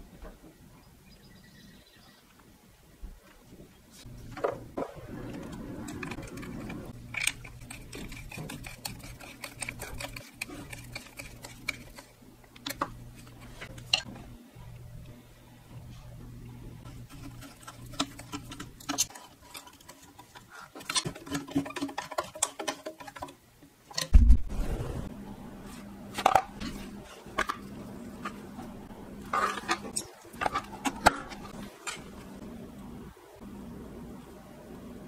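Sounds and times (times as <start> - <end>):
steady low hum: 3.6 - 19.1, 24.1 - 35.0
heavy thump: 24.2 - 25.0.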